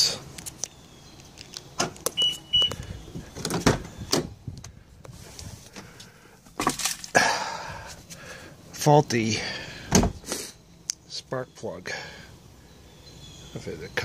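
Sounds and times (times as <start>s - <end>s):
truck door clicks and knocks: 9.9s - 10.2s.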